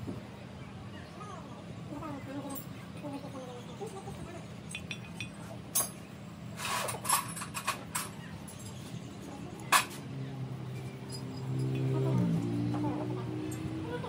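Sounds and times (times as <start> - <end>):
light metallic clinks: 4.7 - 6.0, 10.7 - 12.5.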